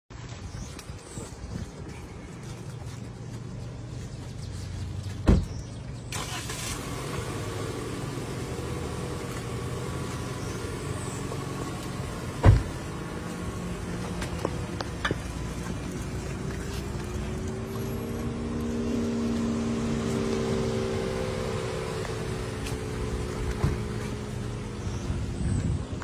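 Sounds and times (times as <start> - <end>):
car doors shutting: 5.2 - 15.6, 21.4 - 24.8
car engine idling: 6.0 - 26.0.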